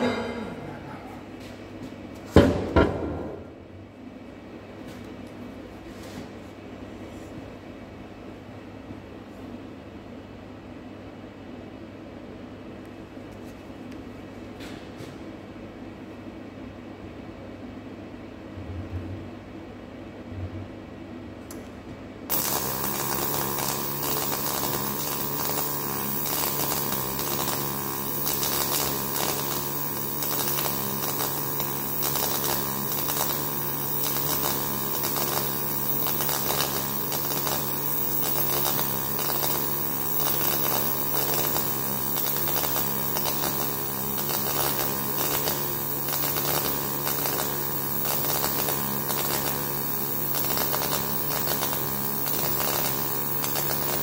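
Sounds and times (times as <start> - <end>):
welding arc crackling buzz: 22.3 - 54.0.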